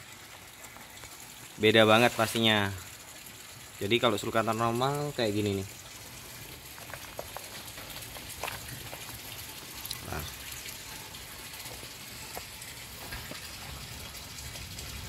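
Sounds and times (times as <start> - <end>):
rustling of leafy greens: 4.8 - 15.0.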